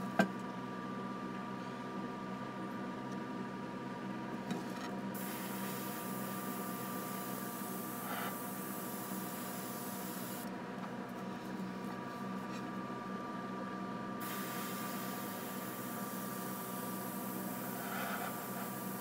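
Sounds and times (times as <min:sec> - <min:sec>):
steady hum: 0:04.8 - 0:19.0
airbrush hissing: 0:05.2 - 0:10.4, 0:14.2 - 0:19.0.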